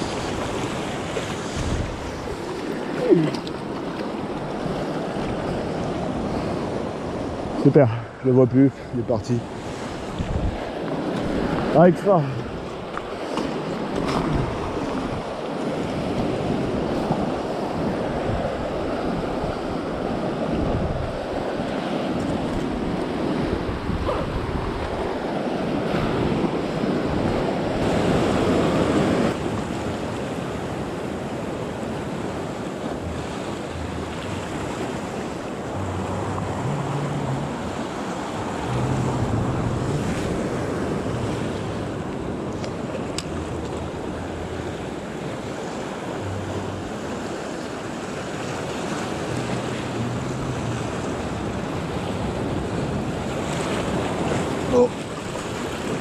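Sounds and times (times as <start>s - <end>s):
surf breaking over rocks: 0.0s - 7.0s, 21.4s - 56.0s
wind buffeting microphone: 0.0s - 8.2s, 8.9s - 11.8s, 12.4s - 29.8s, 30.6s - 56.0s.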